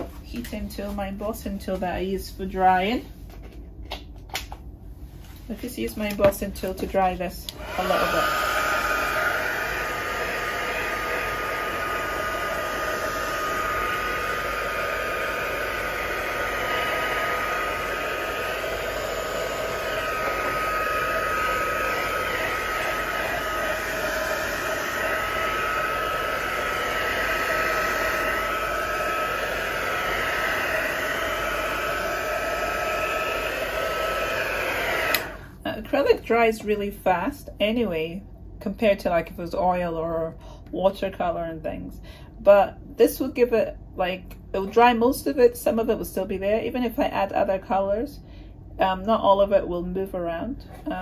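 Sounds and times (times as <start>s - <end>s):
heat tool blowing with whine: 7.0s - 36.4s.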